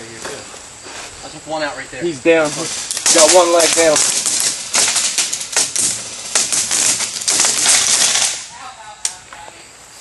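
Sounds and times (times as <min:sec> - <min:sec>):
airsoft guns firing: 0:03.0 - 0:08.5.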